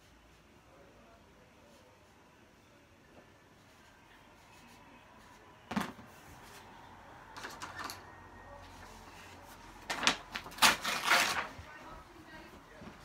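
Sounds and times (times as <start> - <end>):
things being handled: 5.7 - 6.6, 7.3 - 8.1, 8.7 - 11.8.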